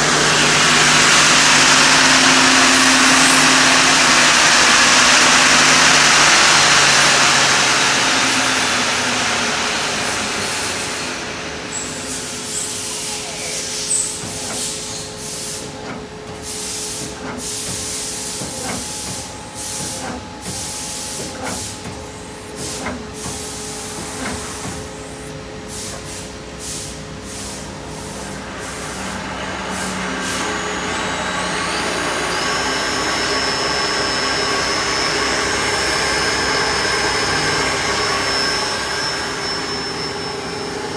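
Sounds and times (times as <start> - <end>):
tool spinning up whine: 0.0 - 27.0, 27.6 - 40.9
machine hum: 0.0 - 40.9.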